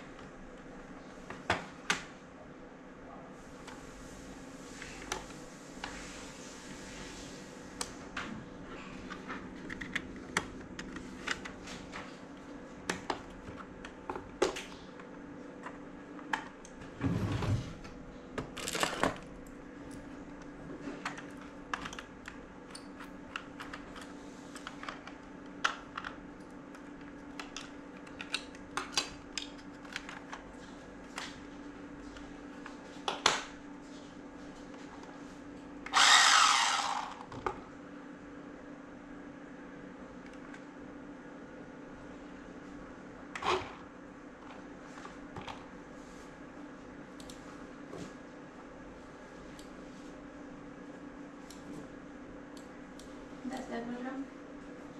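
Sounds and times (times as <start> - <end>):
faint steady hum: 0.0 - 54.9.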